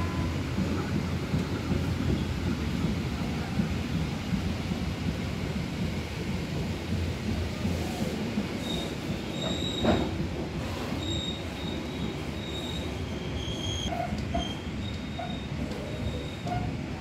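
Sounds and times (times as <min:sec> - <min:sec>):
train rumbling on rails: 0:00.0 - 0:17.0
wheel squeal: 0:08.6 - 0:10.1, 0:11.0 - 0:16.8.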